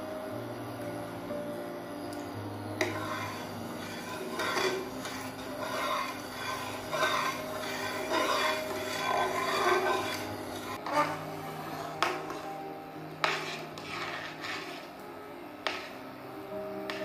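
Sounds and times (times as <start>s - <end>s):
metal spatula scraping a pan: 2.8s - 15.0s, 15.6s - 16.0s.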